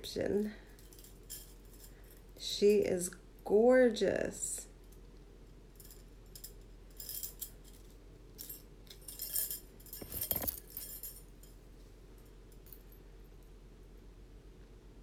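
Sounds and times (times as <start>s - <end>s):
metal jewelry clinking: 0.7s - 2.2s, 5.8s - 11.6s.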